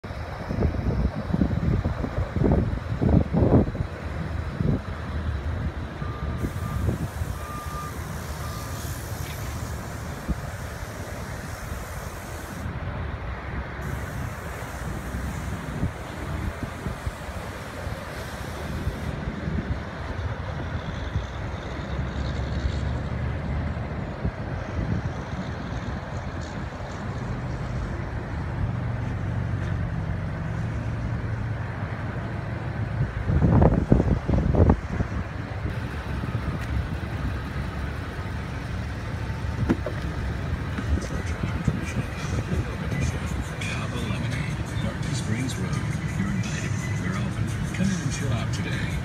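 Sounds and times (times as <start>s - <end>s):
vehicle engine rumbling: 0.0s - 49.0s
wind buffeting microphone: 0.2s - 7.5s, 13.8s - 21.9s, 32.8s - 49.0s.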